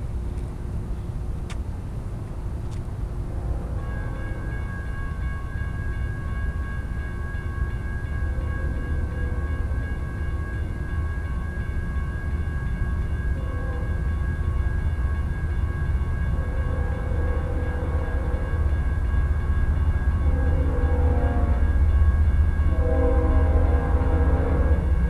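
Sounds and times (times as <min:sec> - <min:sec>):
freight train rumble: 0:00.0 - 0:25.0
distant train air horn: 0:20.4 - 0:21.8, 0:22.7 - 0:25.0.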